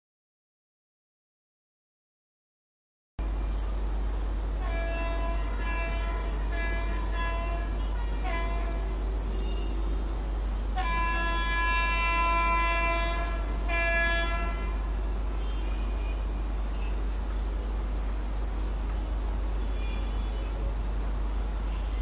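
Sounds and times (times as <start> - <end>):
locomotive horn blasts: 4.6 - 9.9, 10.7 - 16.3.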